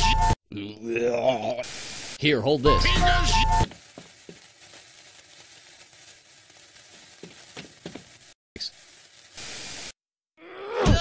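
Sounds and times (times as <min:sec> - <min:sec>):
faint crackles: 0:01.5 - 0:10.0
fuse hissing: 0:01.5 - 0:10.0.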